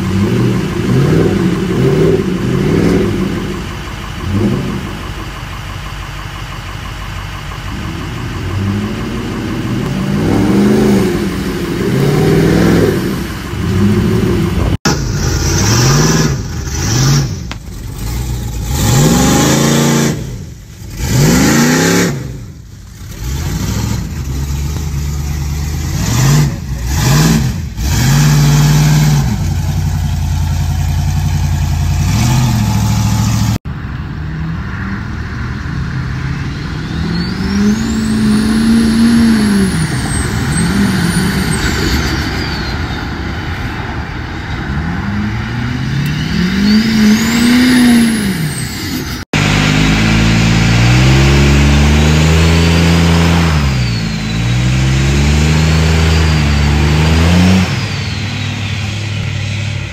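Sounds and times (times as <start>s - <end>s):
engines revving hard: 0.0s - 5.2s, 7.7s - 33.6s, 34.3s - 59.9s
high whine: 0.0s - 25.8s.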